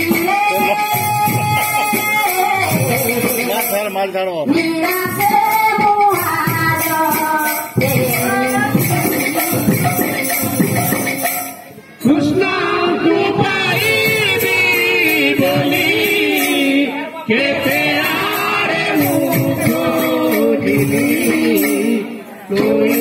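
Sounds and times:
voices singing devotional music: 0:00.0 - 0:23.0
hand drums beating: 0:04.5 - 0:11.7, 0:17.6 - 0:22.0.

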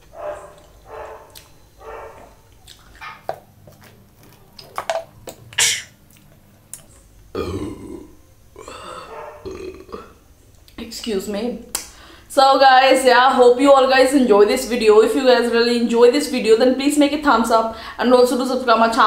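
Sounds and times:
burp: 0:07.3 - 0:10.2.

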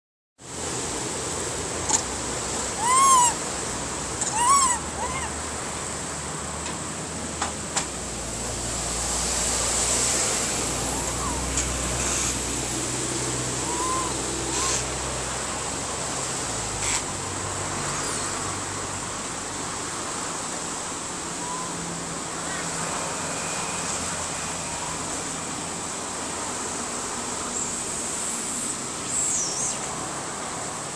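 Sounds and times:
steady outdoor hiss: 0:00.4 - 0:30.9
rising and falling calls: 0:02.7 - 0:03.5, 0:04.1 - 0:05.4, 0:10.2 - 0:15.1, 0:17.8 - 0:18.4, 0:21.4 - 0:21.8.

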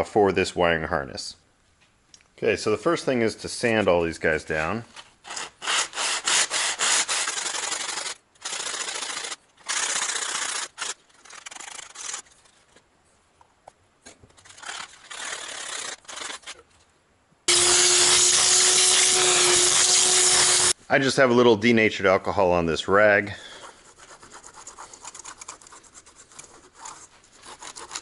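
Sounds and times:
sanding metal with sponge: 0:05.3 - 0:12.7, 0:14.4 - 0:16.6, 0:23.5 - 0:28.0.

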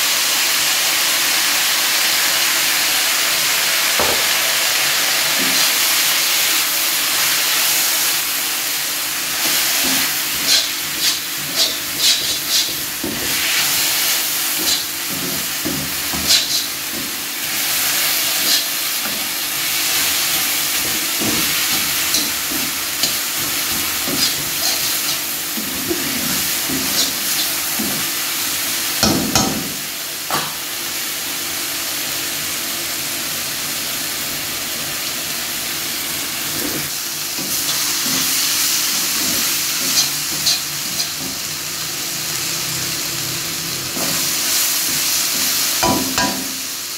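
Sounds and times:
food sizzling in a wok: 0:00.0 - 0:46.9
metal spatula scraping a pan: 0:09.4 - 0:28.0, 0:37.4 - 0:41.4.

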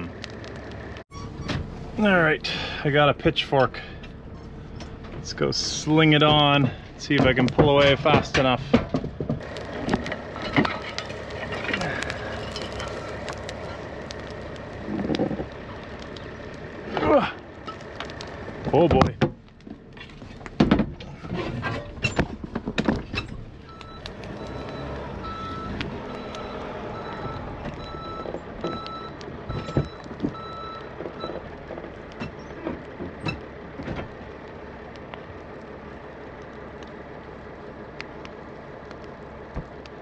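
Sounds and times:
truck engine running: 0:00.0 - 0:40.0
reverse warning beeping: 0:23.6 - 0:31.4.

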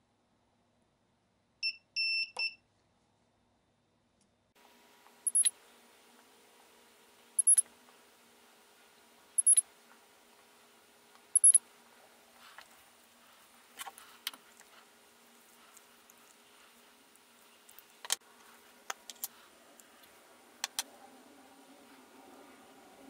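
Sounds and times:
spot welder beep and snap: 0:05.3 - 0:05.5, 0:09.4 - 0:09.6.

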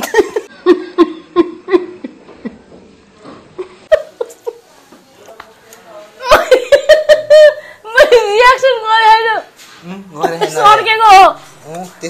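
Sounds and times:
woman laughing: 0:06.2 - 0:08.4.

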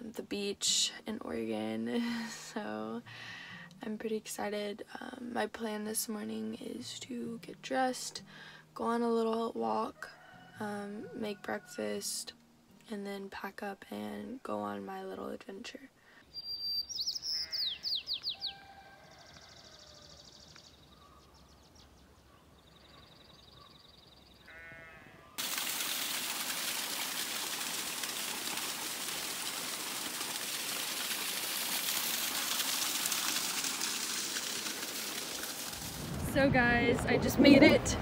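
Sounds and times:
birdsong with high thin calls: 0:16.2 - 0:25.4
sheep bleating: 0:24.4 - 0:25.4
small waterfall splashing: 0:25.4 - 0:36.4.

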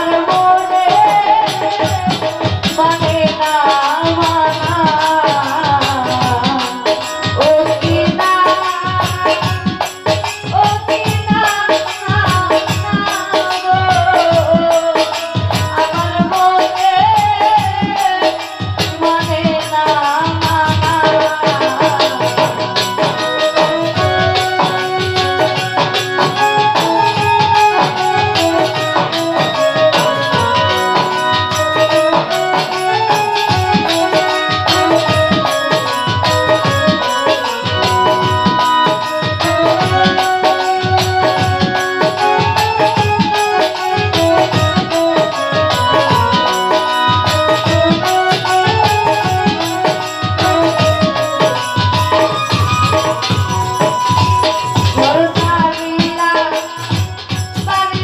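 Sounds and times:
woman singing into a microphone: 0:00.0 - 0:58.0.

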